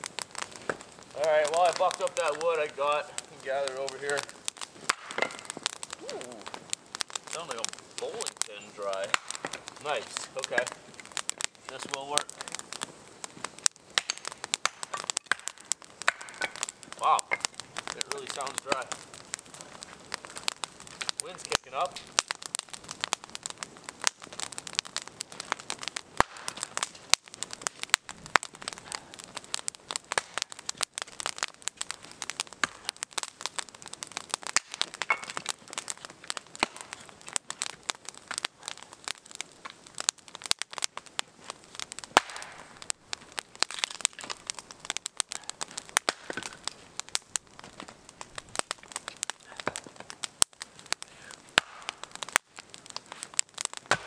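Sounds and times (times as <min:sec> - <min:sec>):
campfire crackling and popping: 0:00.0 - 0:54.0.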